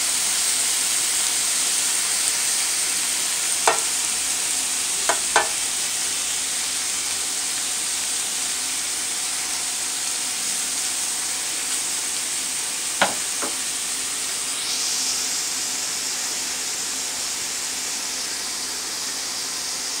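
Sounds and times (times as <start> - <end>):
shrimp sizzling in oil: 0.0 - 20.0
stirring taps on pan: 3.7 - 3.9, 5.1 - 5.6, 13.0 - 13.6.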